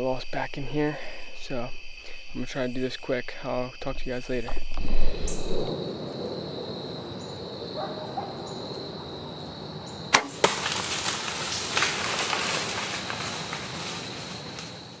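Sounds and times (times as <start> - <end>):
high insect drone: 0.0 - 15.0
arrow hitting: 10.1 - 10.8
bowstring release crack: 10.1 - 11.0
rustling and crackling: 10.2 - 15.0.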